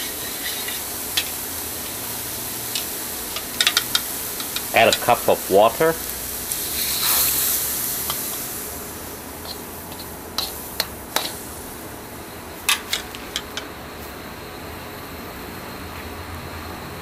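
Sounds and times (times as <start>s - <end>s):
water hissing in a hot wok: 0.0s - 13.3s.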